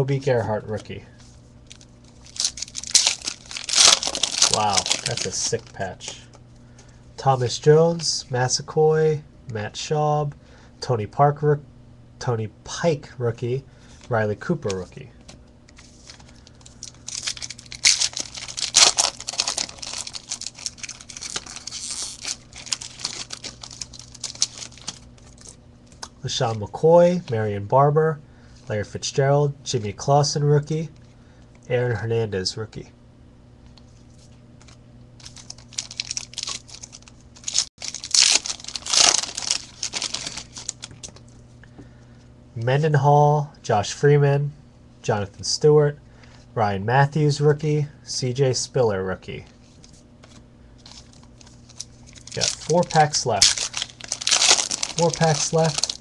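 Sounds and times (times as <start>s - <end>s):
foil pack tearing and crinkling: 1.6s - 5.8s, 15.8s - 25.6s, 34.6s - 41.1s, 50.8s - 56.0s.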